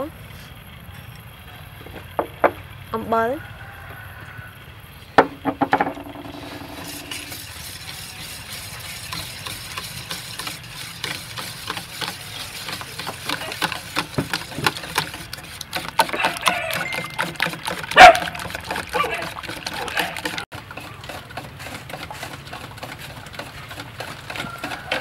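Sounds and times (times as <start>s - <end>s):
sharp knocks: 5.2s - 7.1s
wire whisk clinking in metal bowl: 15.8s - 20.4s.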